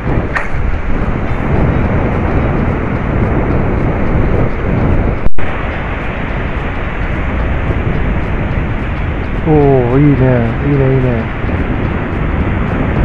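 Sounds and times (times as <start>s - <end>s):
surf: 0.0s - 13.0s
wind buffeting microphone: 0.0s - 13.0s
loud pop: 0.3s - 0.6s.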